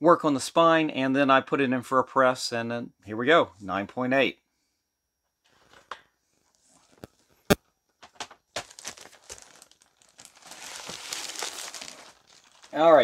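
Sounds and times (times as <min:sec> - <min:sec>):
plastic crinkling and rustling: 0:08.0 - 0:13.0.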